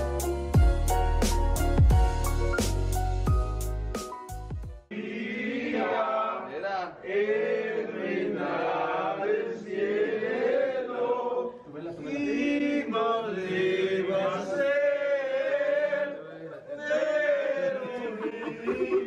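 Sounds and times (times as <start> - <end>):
group singing in unison: 4.9 - 19.0.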